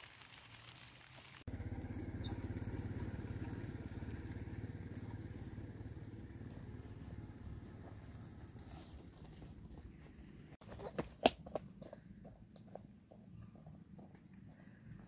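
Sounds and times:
small engine running: 0.7 - 10.6
faint high chirps: 1.6 - 8.5.

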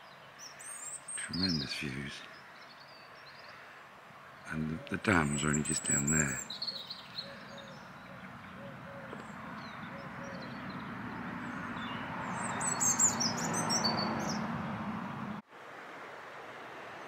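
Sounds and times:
small birds chirping: 0.0 - 14.7.

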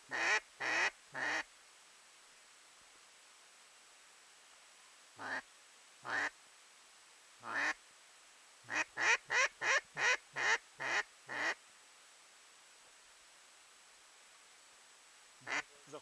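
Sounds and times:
duck quacking: 0.1 - 1.4, 5.2 - 5.4, 6.0 - 6.3, 7.4 - 7.8, 8.7 - 11.6, 15.4 - 15.7.

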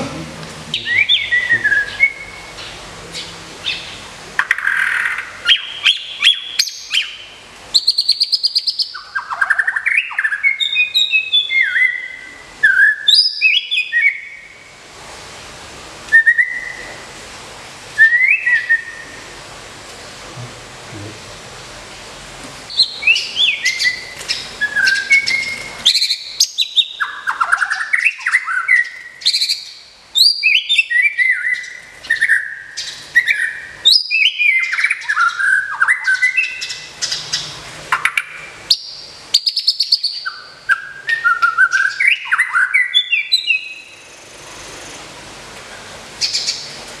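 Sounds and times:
bird singing whistled phrases: 0.7 - 2.6, 3.2 - 14.6, 16.1 - 16.9, 18.0 - 19.2, 22.7 - 44.0.

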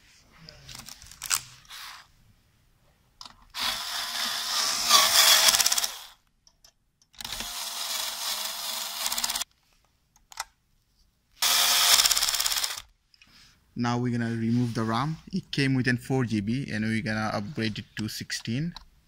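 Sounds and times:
electric screwdriver whirring: 3.6 - 6.2, 7.2 - 9.4, 11.4 - 12.9.

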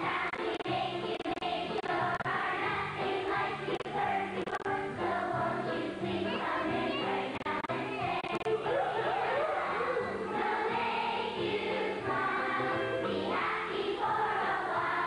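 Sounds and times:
children's choir singing: 0.0 - 15.0
musical accompaniment: 0.0 - 15.0.

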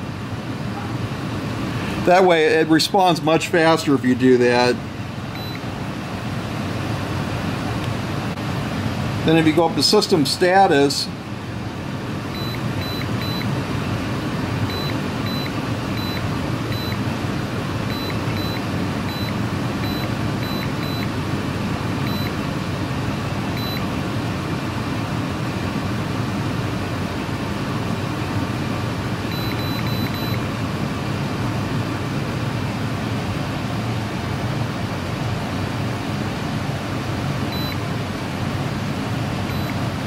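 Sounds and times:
short high beeps: 12.4 - 13.5, 14.7 - 17.0, 17.9 - 21.1, 22.1 - 22.4, 23.6 - 23.8, 29.3 - 30.4, 37.6 - 37.8, 39.5 - 39.8.

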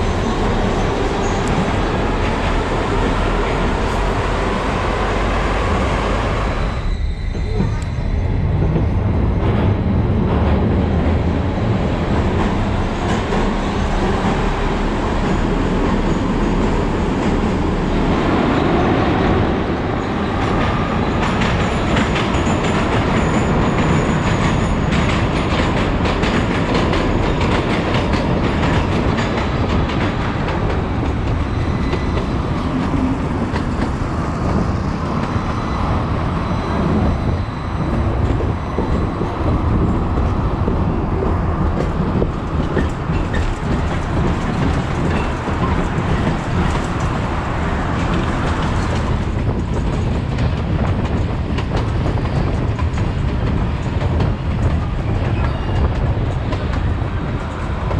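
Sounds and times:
rumble of wheels on rail: 0.0 - 57.9
faint high wheel squeal: 6.5 - 8.4, 35.4 - 38.0, 55.3 - 56.0
clacking over rail joints: 38.2 - 57.9.

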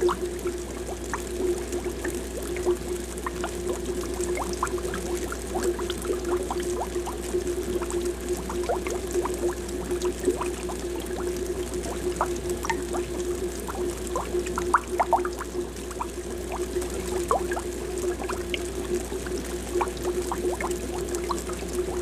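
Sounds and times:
aquarium air bubbles popping: 0.0 - 22.0
steady hum: 0.0 - 22.0.

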